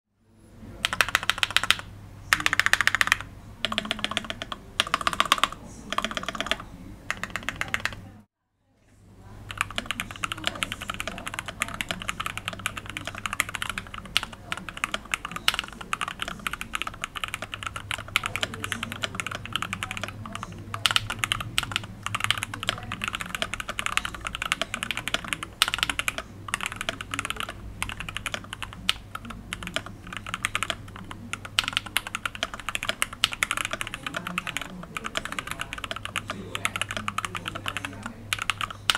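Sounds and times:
low steady hum: 0:00.2 - 0:38.9
mechanical keyboard typing: 0:00.8 - 0:08.1, 0:09.5 - 0:38.9.

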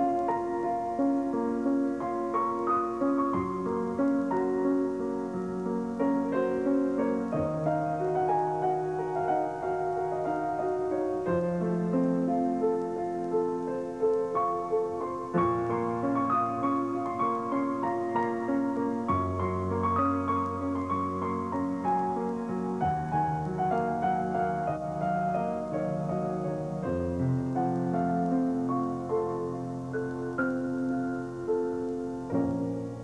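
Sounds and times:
gentle piano music: 0:00.0 - 0:33.0.

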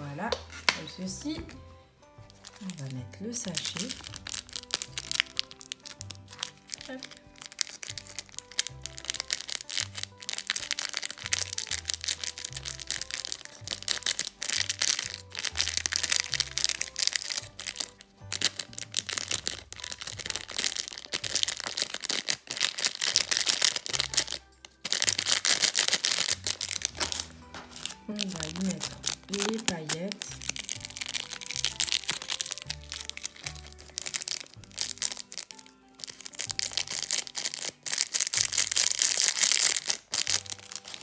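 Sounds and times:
plastic sachet crinkling: 0:02.2 - 0:41.0
background music with bass: 0:26.1 - 0:37.2.

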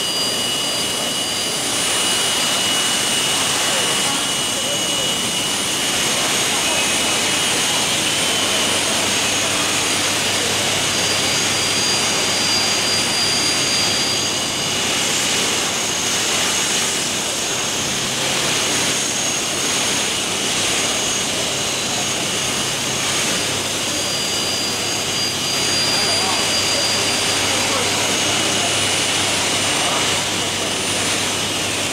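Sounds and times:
drilling machine roaring: 0:00.0 - 0:31.9
high-pitched machine whines: 0:00.0 - 0:31.9
hum of exhibition hall: 0:00.0 - 0:31.9.

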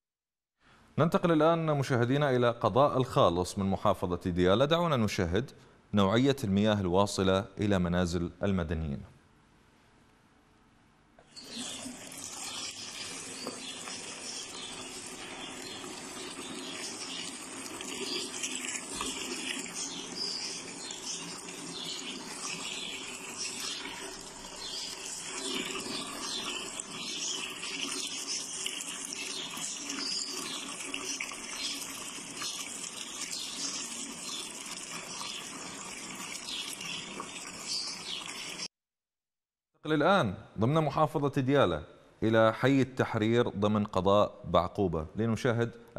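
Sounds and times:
tap water running into bowl: 0:11.2 - 0:38.7.

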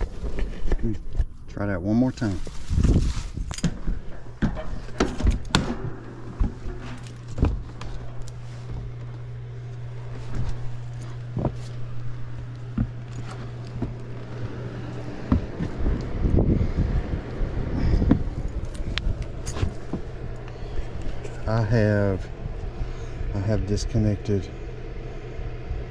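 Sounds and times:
steady low hum: 0:00.0 - 0:25.9
footsteps: 0:02.1 - 0:17.3, 0:17.9 - 0:21.5.

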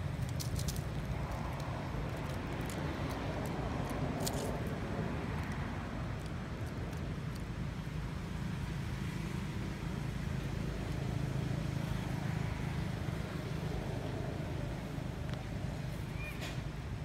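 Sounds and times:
vehicle passing: 0:00.0 - 0:07.4
road traffic rumble: 0:00.0 - 0:17.0.

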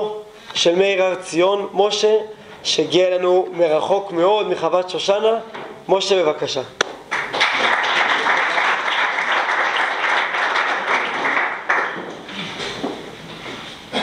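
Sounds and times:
audience applauding: 0:07.1 - 0:12.4.

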